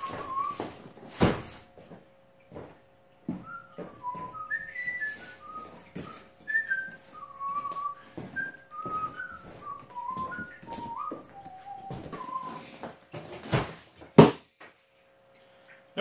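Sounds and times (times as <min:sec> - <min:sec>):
person whistling a tune: 0:00.0 - 0:00.8, 0:03.4 - 0:12.9.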